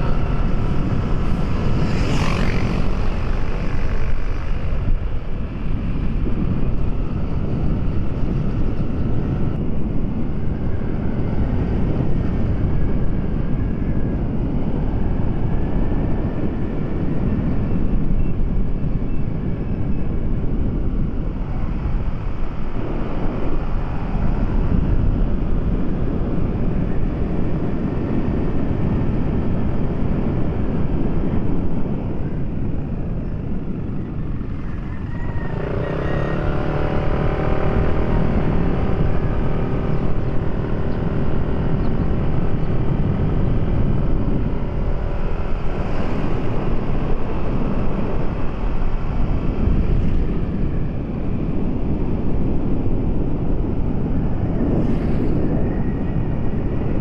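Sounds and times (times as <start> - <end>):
vehicle engine running: 0.0 - 12.8
pitched engine hum: 0.0 - 57.0
wind and road noise: 0.0 - 57.0.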